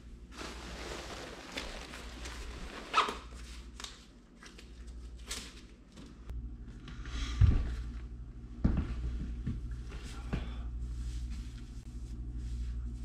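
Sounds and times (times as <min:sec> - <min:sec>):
fabric rustling and swishing: 0:00.0 - 0:03.7.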